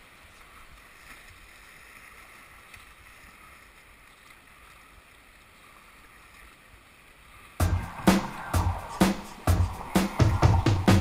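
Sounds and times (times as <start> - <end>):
whitewater rapids rushing: 7.6 - 11.0.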